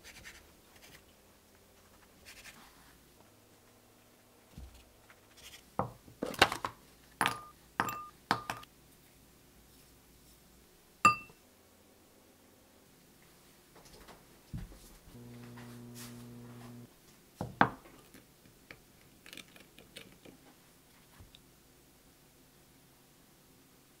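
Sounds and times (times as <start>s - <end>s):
clink against glass bowl: 7.2s - 8.6s, 11.1s - 11.4s
glass bowl ringing: 7.2s - 8.6s, 11.1s - 11.3s.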